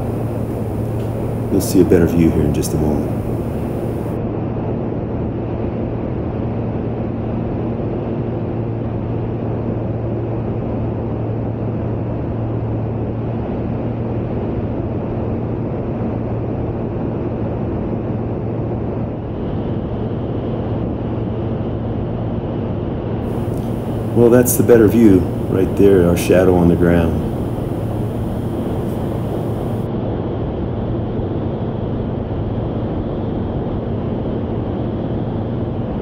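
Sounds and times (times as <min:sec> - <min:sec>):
airflow noise: 0:00.0 - 0:04.2, 0:23.3 - 0:29.9
propeller aircraft engine drone: 0:00.0 - 0:04.2, 0:23.3 - 0:29.9.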